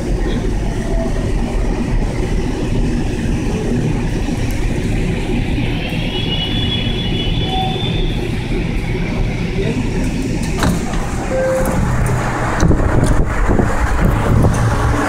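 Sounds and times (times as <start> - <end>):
train wheels rumbling on track: 0.0 - 15.0
thin high whine: 11.2 - 12.3.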